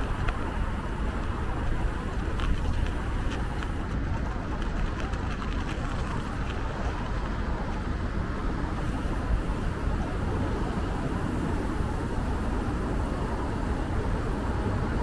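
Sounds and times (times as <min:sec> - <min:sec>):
city street traffic rumble: 0:00.0 - 0:15.0.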